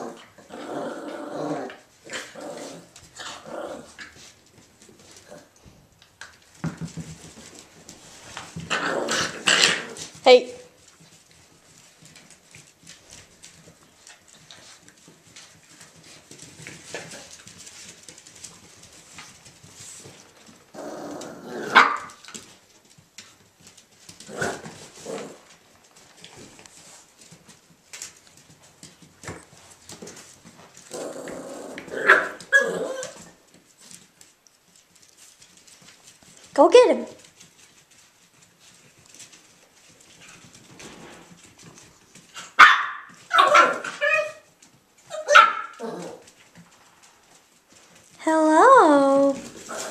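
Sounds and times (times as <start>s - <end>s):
paws scrabbling on wooden floor: 0.0s - 49.9s
puppies barking and yelping: 31.2s - 33.4s, 42.4s - 46.3s
dog barking sharply: 42.6s - 43.8s.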